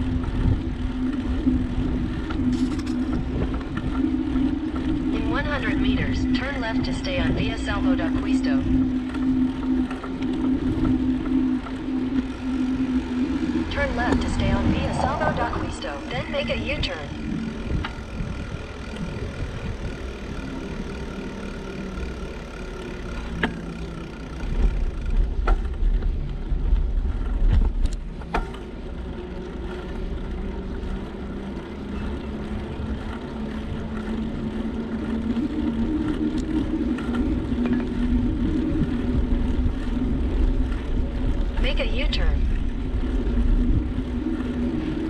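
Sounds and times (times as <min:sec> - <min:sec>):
bicycle clicks: 0:00.0 - 0:06.5, 0:08.2 - 0:14.2, 0:17.1 - 0:41.7, 0:42.4 - 0:45.0
wind gusting on microphone: 0:00.0 - 0:20.6
motor vehicle hum: 0:00.0 - 0:45.0.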